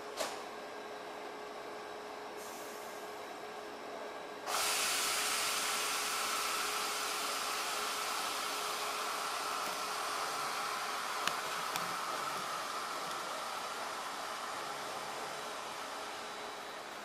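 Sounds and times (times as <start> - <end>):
rushing air hiss: 4.5 - 11.6.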